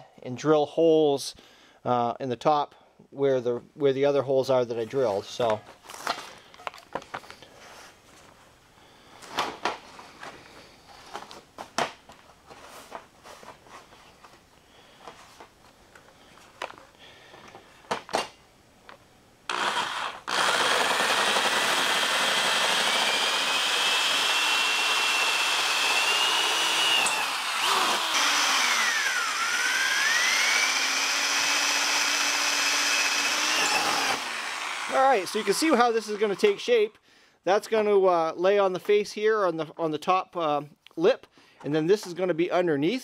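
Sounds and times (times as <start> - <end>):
electric drill whining: 19.5 - 36.9.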